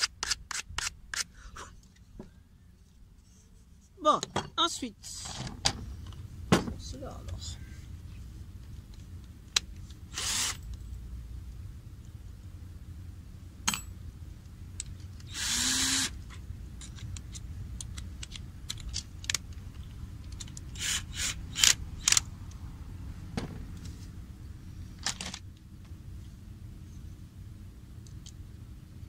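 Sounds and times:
cordless drill burst: 10.1 - 10.6, 15.3 - 16.2, 20.7 - 22.2.

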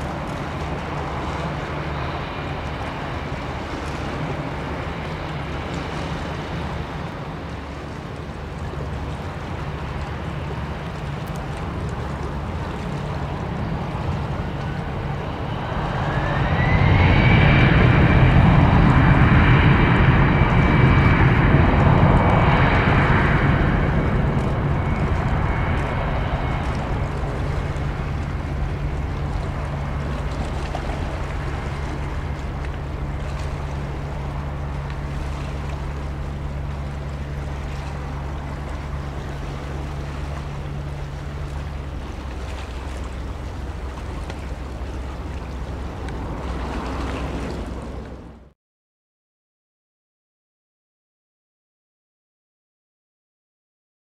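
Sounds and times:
jet engines spooling up: 13.3 - 48.4.

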